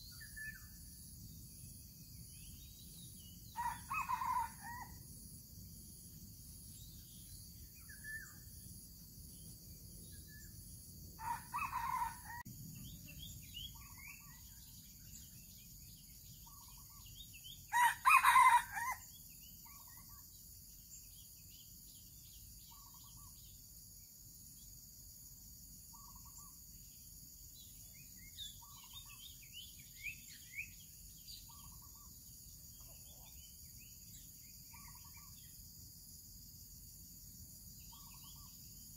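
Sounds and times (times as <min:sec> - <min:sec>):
insects buzzing: 0:00.0 - 0:38.9
rooster crowing: 0:03.6 - 0:05.0, 0:11.2 - 0:12.5, 0:17.7 - 0:19.1
small birds chirping: 0:11.2 - 0:23.7, 0:27.6 - 0:35.6, 0:37.9 - 0:38.6.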